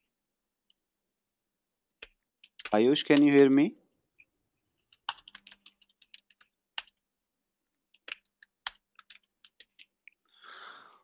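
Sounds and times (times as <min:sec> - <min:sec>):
keyboard typing: 0:02.0 - 0:03.5, 0:04.1 - 0:10.2.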